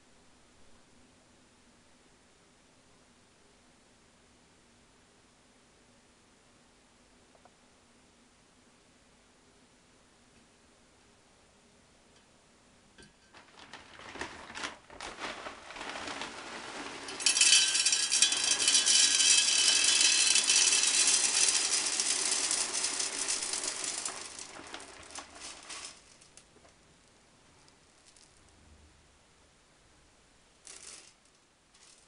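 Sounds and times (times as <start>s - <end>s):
clay pellets rattling into glass: 15.9s - 26.4s, 30.6s - 32.0s.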